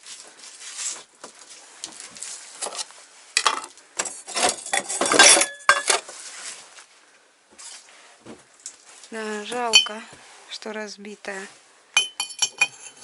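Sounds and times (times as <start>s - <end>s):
crockery clinking: 4.4s - 6.0s, 9.7s - 10.0s, 12.0s - 13.0s.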